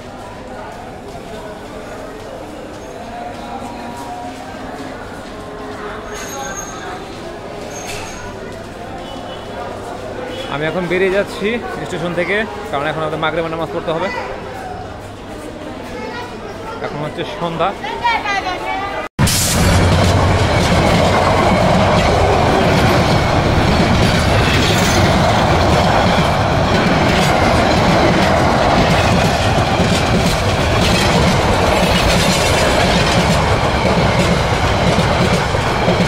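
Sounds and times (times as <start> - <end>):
train wheels rumbling on rails: 19.2 - 36.0.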